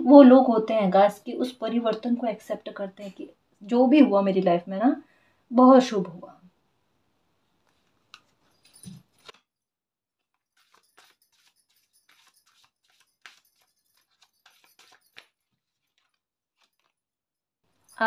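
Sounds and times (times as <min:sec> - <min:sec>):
cards being shuffled by hand: 0:07.6 - 0:09.4, 0:10.2 - 0:17.0.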